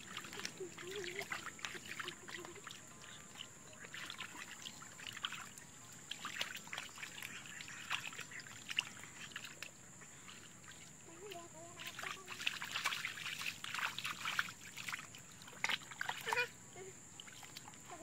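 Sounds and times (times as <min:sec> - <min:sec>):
hands splashing in muddy water: 0:03.8 - 0:09.7, 0:10.7 - 0:16.4.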